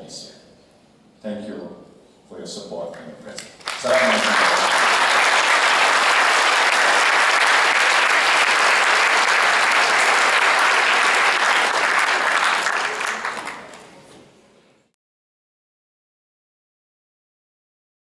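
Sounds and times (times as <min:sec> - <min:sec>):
audience applauding: 0:03.6 - 0:13.9.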